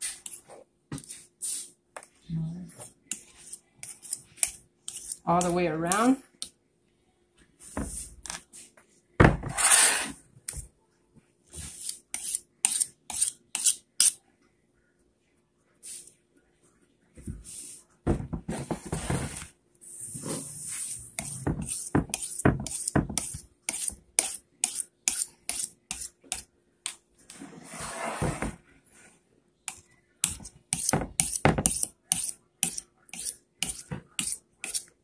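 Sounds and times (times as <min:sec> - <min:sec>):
knife scraping metal pan: 0:09.5 - 0:10.2, 0:11.6 - 0:14.2, 0:20.2 - 0:26.4, 0:30.2 - 0:34.9.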